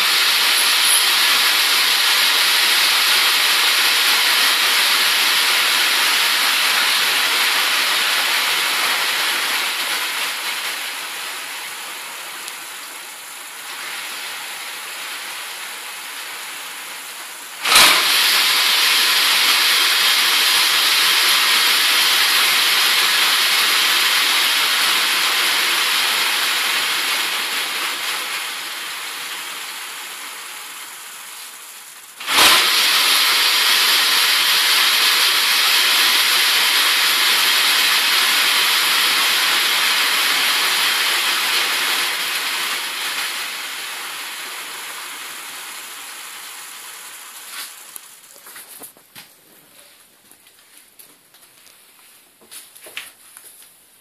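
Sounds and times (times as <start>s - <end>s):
treadmill belt whirring: 0.0s - 11.6s, 17.6s - 30.5s, 32.2s - 44.8s.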